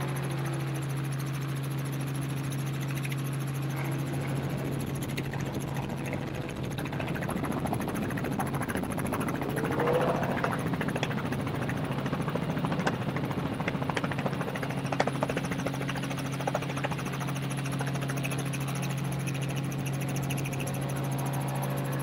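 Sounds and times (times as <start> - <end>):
helicopter drone overhead: 0.0 - 22.0
sharp ticks: 0.0 - 22.0
utility vehicle engine revving: 9.0 - 11.2.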